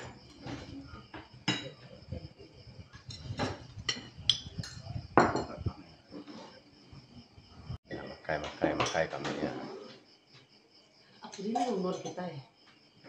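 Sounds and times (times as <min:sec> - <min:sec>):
spoons clinking against plates: 0:03.0 - 0:05.6, 0:11.3 - 0:12.2.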